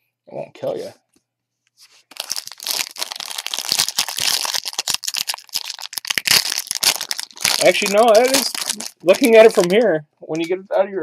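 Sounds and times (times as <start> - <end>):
foil wrapper crinkling: 2.0 - 9.8.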